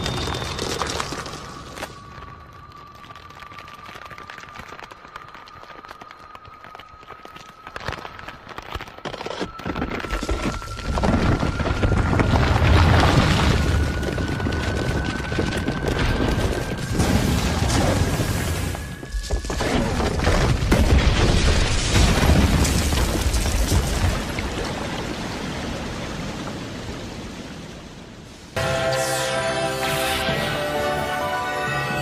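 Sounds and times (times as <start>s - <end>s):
rock crashing and crumbling: 0.0s - 25.9s
orchestral music: 28.6s - 32.0s
rising high tone: 28.6s - 32.0s.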